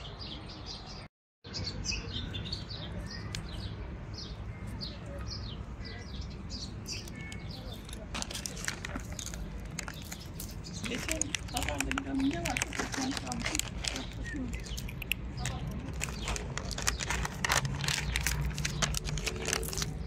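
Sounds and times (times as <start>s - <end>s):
low outdoor background: 0.0s - 20.0s
small songbirds chirping: 0.0s - 20.0s
crackling rustles: 6.9s - 20.0s.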